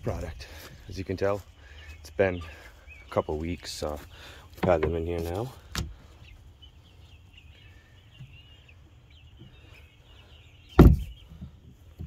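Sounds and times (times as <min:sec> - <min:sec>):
chicks peeping and chirping: 0:00.0 - 0:12.0
loud sharp thump: 0:10.8 - 0:11.1.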